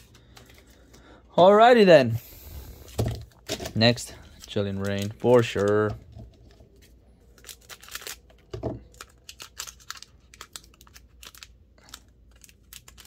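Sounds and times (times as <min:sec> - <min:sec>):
foil wrapper crinkling and tearing: 0:03.4 - 0:05.9, 0:07.2 - 0:13.0.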